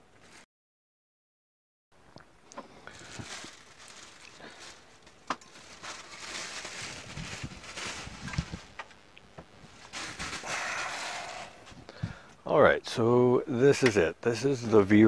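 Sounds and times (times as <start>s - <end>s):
plastic bag rustling: 2.6s - 12.0s.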